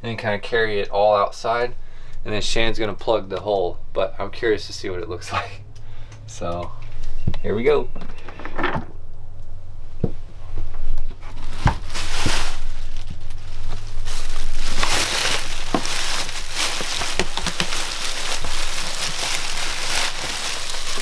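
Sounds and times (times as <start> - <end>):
plastic bag crinkling: 11.1 - 21.0.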